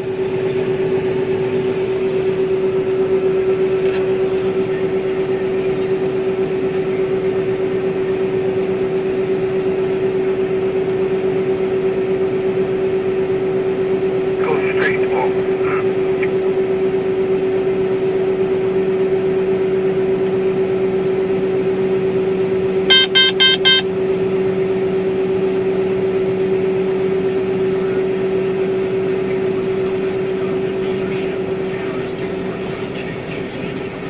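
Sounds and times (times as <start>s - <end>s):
combine harvester droning: 0.0s - 34.0s
short electronic beeps: 22.9s - 23.9s.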